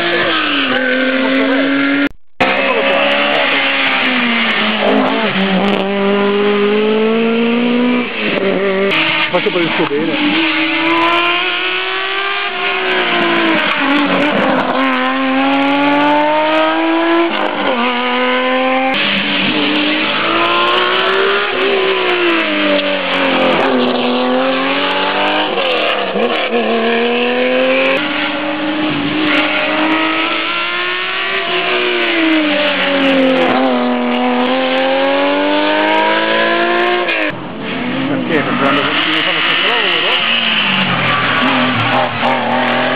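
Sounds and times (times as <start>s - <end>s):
rally cars accelerating hard: 0.0s - 42.9s.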